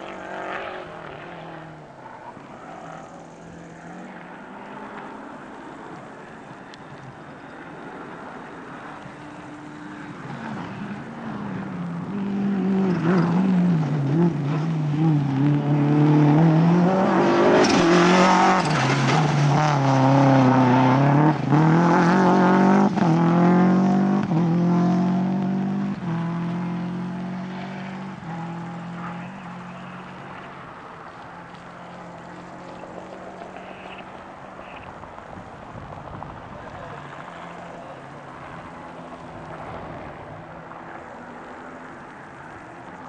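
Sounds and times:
rally car engine revving: 0.0 - 5.4, 8.8 - 34.9.

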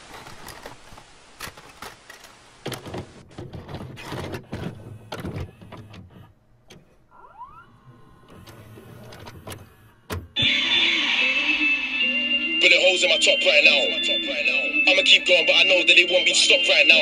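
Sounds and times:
tape hiss: 10.4 - 17.0
tape whine: 10.4 - 17.0.

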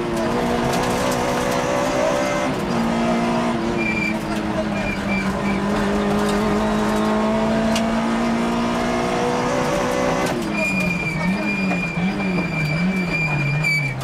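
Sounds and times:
rally car engine revving: 0.0 - 14.0
high-pitched squeal: 9.6 - 14.0.

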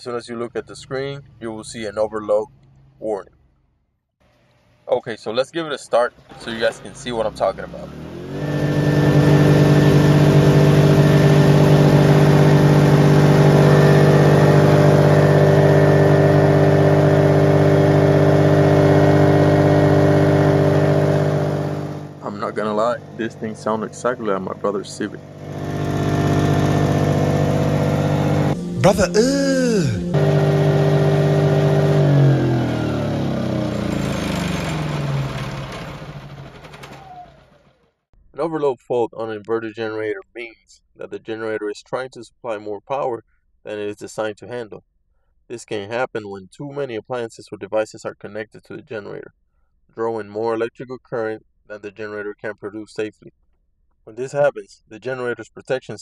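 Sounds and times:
generator engine running: 6.2 - 37.9.

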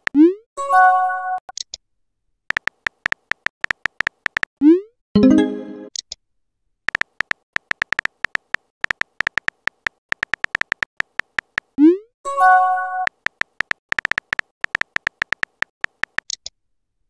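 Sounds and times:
keyboard tap clicks: 2.5 - 4.5, 6.9 - 11.7, 13.1 - 16.4.

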